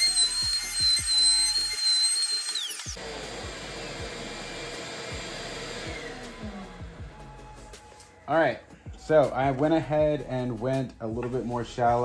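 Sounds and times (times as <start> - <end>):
router whining: 0.0 - 7.2
electronic background music: 0.0 - 12.0.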